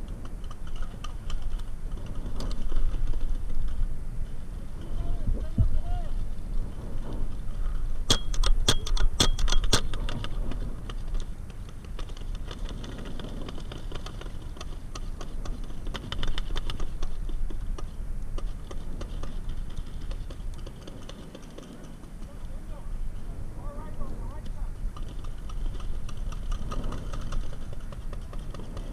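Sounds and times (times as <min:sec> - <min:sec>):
paintball markers firing: 0:08.1 - 0:22.6, 0:24.0 - 0:28.9.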